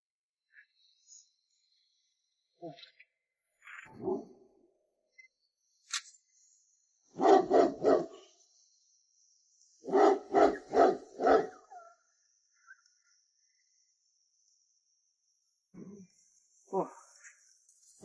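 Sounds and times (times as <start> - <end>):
dog barking: 3.9 - 4.3, 7.2 - 8.2, 9.8 - 11.9.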